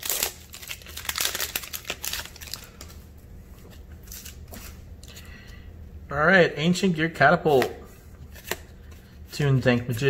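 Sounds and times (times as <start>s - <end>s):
foil wrapper crinkling: 0.0s - 3.0s
cards being handled: 3.6s - 5.2s, 7.5s - 10.0s.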